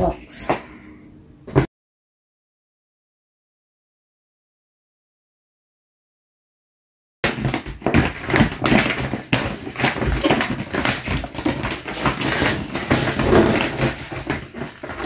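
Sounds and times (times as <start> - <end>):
paper poster rustling: 7.3 - 15.0.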